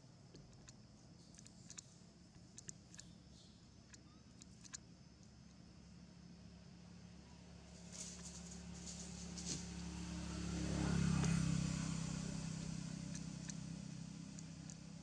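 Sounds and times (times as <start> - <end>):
vehicle engine passing by: 7.6 - 15.0.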